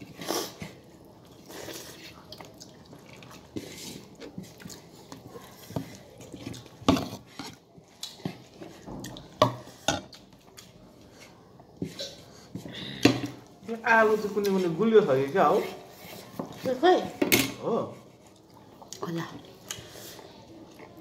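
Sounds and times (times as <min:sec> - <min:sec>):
dishes and utensils clinking: 0:11.8 - 0:13.4.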